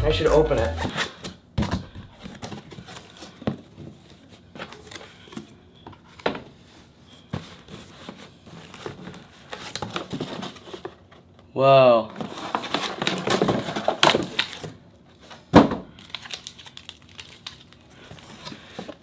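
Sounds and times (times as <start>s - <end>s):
cardboard crinkling and scraping: 0.2s - 5.5s, 7.1s - 11.1s, 12.1s - 15.4s.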